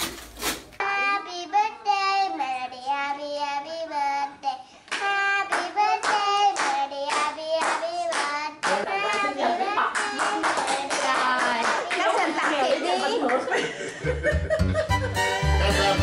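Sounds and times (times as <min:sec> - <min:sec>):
young children singing: 0:00.8 - 0:11.6
hand claps: 0:04.9 - 0:09.3, 0:09.9 - 0:12.6.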